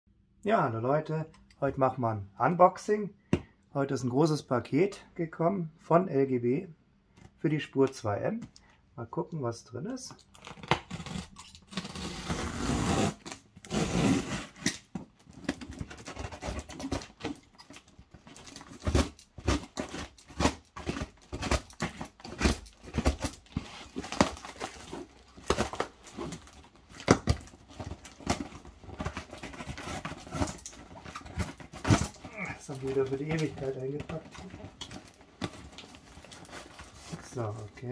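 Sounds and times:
box cutter slitting tape: 10.3 - 32.4
cardboard scrapes and rustles: 11.1 - 14.7, 18.3 - 37.9.

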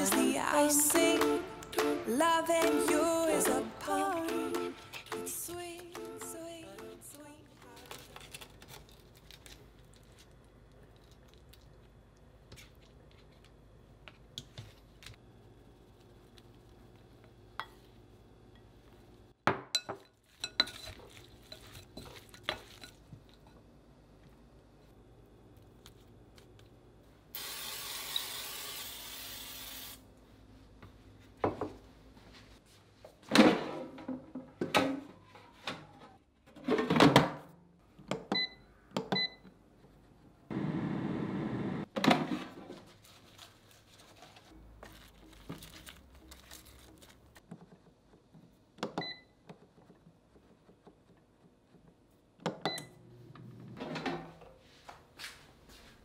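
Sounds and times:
hiss: 27.4 - 30.0
kitchen clatters and knocks: 33.2 - 39.3, 41.9 - 42.9, 53.6 - 54.6.

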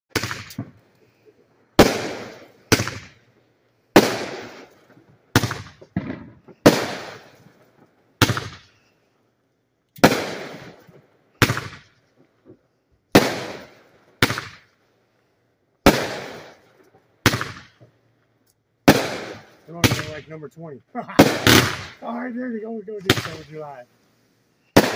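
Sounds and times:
fireworks bangs: 0.1 - 9.0, 10.0 - 14.8, 15.8 - 18.0, 18.8 - 23.9, 24.6 - 24.9.

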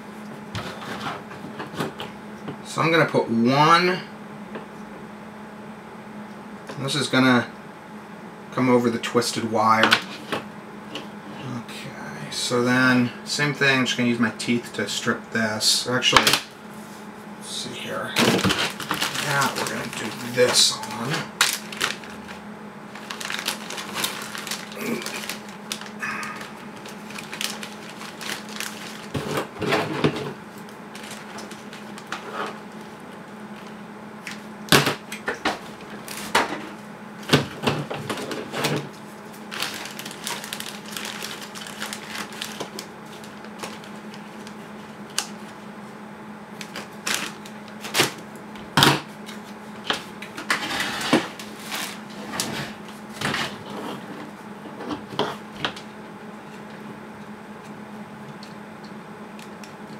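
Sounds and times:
steady low hum: 0.0 - 59.9
plastic bag crinkling: 18.2 - 29.6, 30.6 - 32.8, 39.2 - 45.6, 46.6 - 48.2.

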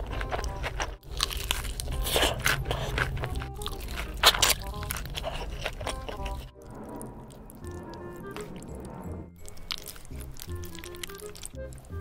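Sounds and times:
crunching bites into fried chicken: 0.0 - 6.5
chewing: 0.0 - 8.0, 9.4 - 12.0.

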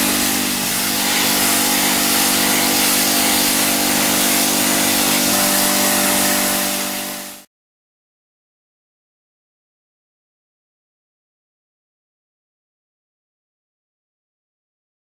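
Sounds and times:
pump motor humming: 0.0 - 7.5
water jet hissing on metal rim: 0.0 - 7.5.

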